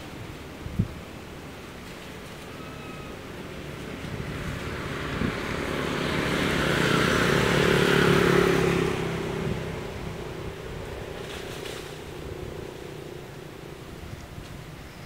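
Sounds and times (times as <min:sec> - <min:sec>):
motor vehicle passing by: 0:02.3 - 0:14.2.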